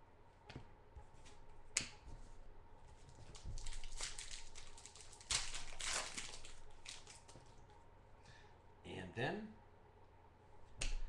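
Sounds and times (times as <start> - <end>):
cards and packaging rustling: 3.0 - 7.6.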